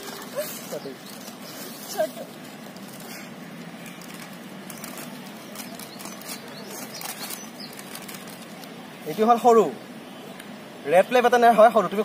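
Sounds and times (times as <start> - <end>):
plastic wrapping crinkling: 0.0 - 9.2.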